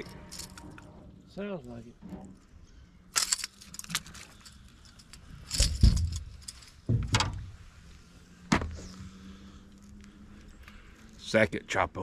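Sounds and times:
light metallic clinks: 3.1 - 7.4
knocks: 6.9 - 7.5.

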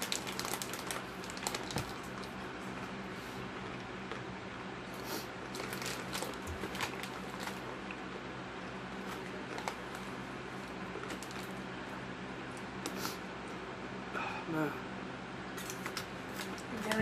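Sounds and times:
chips crunching: 0.0 - 2.4, 5.4 - 8.0, 8.6 - 11.6
snack bag crinkling: 0.0 - 2.4, 5.3 - 8.0, 8.6 - 11.7, 15.6 - 17.0.

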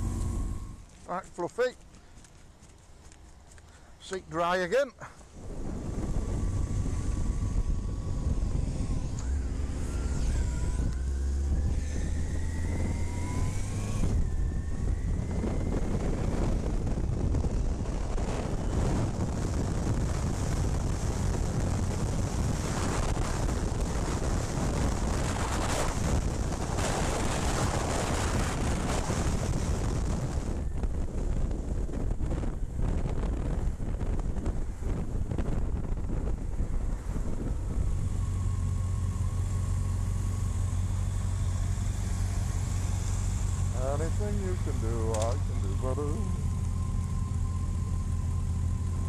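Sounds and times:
motorcycle engine accelerating: 0.0 - 1.0, 5.4 - 49.0
wind and road noise: 0.0 - 49.0.

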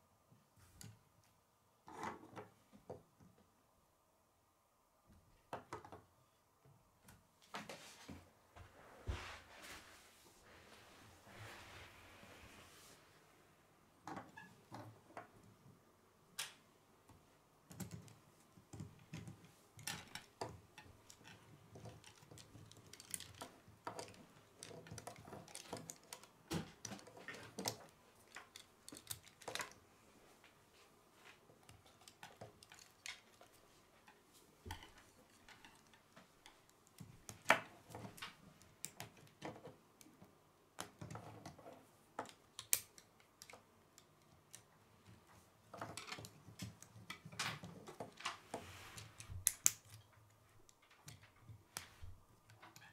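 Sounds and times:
plastic pieces clicking together: 17.7 - 29.8, 42.2 - 44.7, 49.2 - 50.1.

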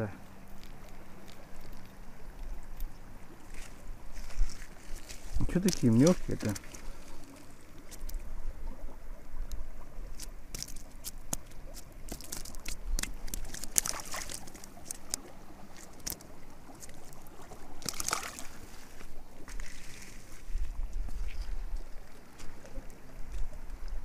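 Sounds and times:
river water lapping: 0.0 - 24.0
crunching footsteps on gravel: 3.5 - 7.1
hands handling fishing tackle: 10.2 - 17.2.

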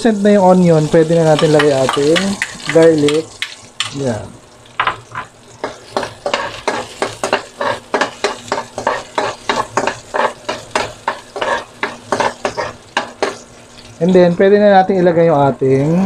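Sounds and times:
onion and garlic sizzling in oil: 0.0 - 16.0
metal spoon scraping a wok: 5.1 - 13.9.

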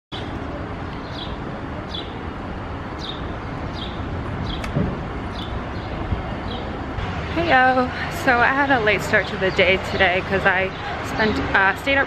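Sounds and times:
low traffic rumble: 0.1 - 12.0
bird chirping: 0.9 - 2.2, 3.0 - 6.7
thump: 4.6 - 5.0.

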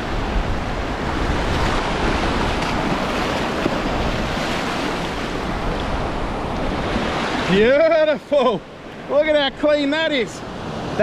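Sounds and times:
wind buffeting microphone: 0.0 - 7.7
ocean waves breaking: 0.0 - 11.0.

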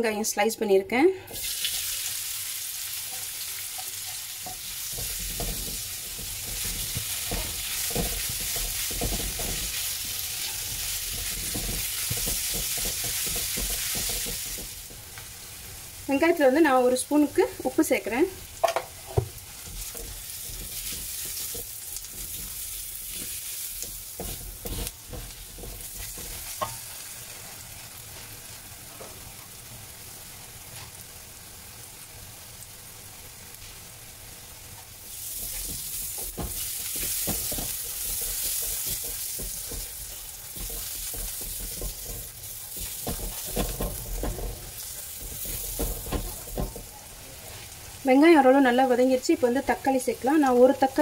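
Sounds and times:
onions sizzling in oil: 1.2 - 51.0
spatula scraping pan: 3.1 - 15.0, 18.6 - 27.6, 35.1 - 47.8.

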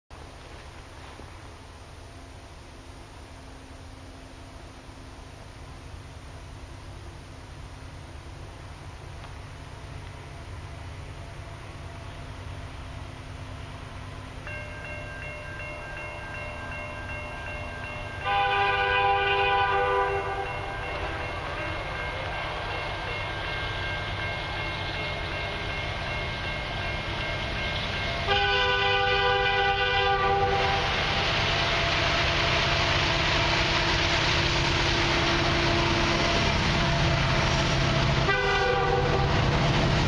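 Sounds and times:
approaching train rumble: 0.1 - 40.0
train horn blasts: 18.1 - 21.9, 28.1 - 31.8, 38.0 - 39.5.

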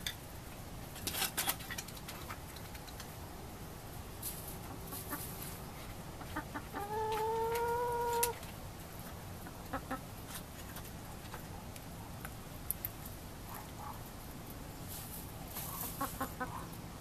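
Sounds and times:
hens clucking: 4.3 - 11.6, 15.5 - 16.8.

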